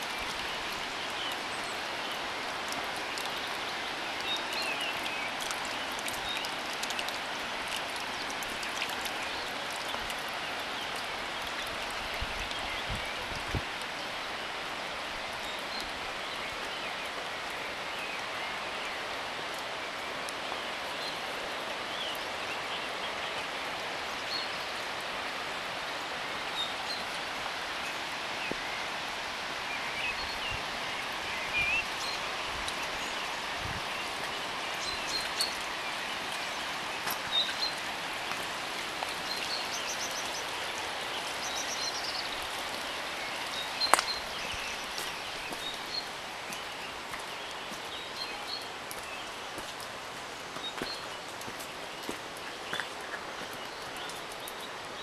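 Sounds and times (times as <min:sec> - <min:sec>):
steady rain falling: 0:00.0 - 0:55.0
small birds chirping: 0:29.7 - 0:55.0.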